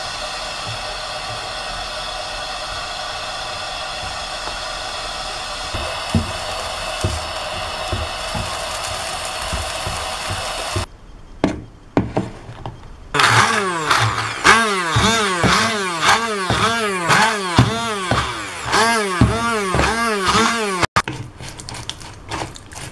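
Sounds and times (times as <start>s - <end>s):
frying pan hiss: 0.0s - 10.9s
immersion blender pulsing: 0.0s - 10.9s, 13.2s - 21.0s.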